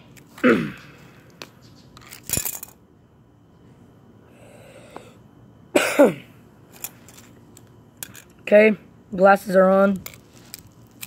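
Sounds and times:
person coughing: 0:00.4 - 0:00.9, 0:05.7 - 0:06.4
pliers clattering on metal: 0:02.0 - 0:02.8, 0:06.7 - 0:08.4.

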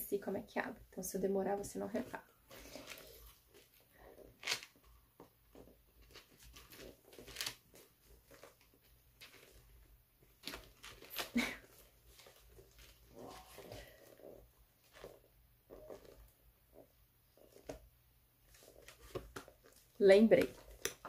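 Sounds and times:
handbag rustling: 0:05.6 - 0:17.8.

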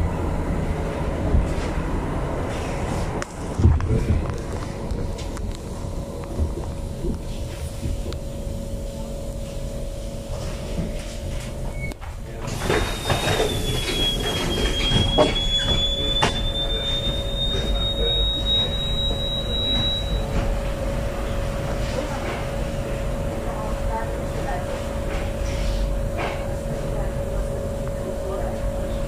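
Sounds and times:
constant hum: 0:00.0 - 0:29.0
light rail car rumbling: 0:00.0 - 0:29.0
wheels squealing: 0:12.6 - 0:20.3.

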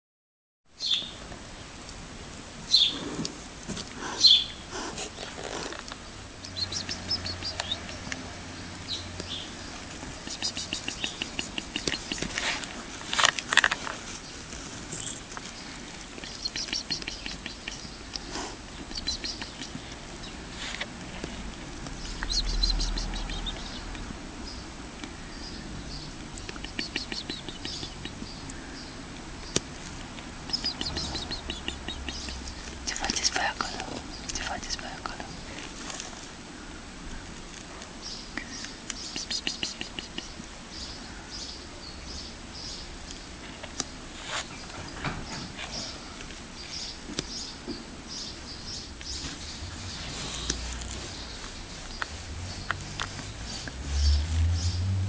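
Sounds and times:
faint steady hiss: 0:00.7 - 0:55.0
small birds chirping and trilling: 0:00.8 - 0:01.2, 0:02.7 - 0:55.0
low rumble: 0:52.2 - 0:55.0.

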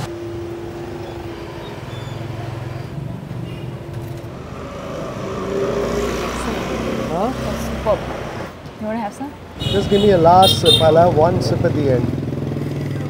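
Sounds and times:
steady hum: 0:00.0 - 0:03.2
street traffic: 0:00.0 - 0:13.0.

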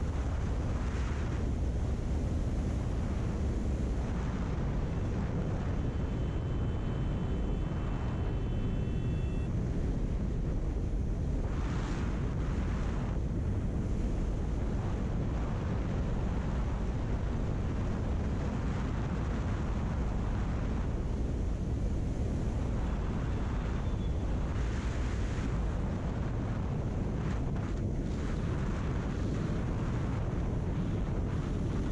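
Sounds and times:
wind rush on microphone: 0:00.0 - 0:31.9.

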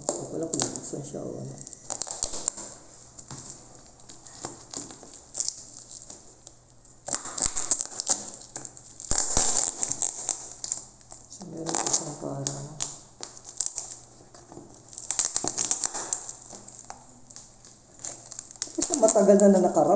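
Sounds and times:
bubble wrap crinkling: 0:00.0 - 0:19.9.

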